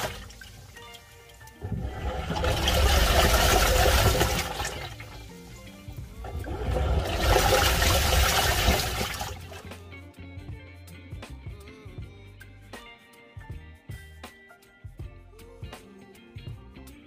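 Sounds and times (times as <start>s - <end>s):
water sloshing in washing machine: 0.0s - 1.0s, 1.6s - 5.3s, 6.0s - 9.7s.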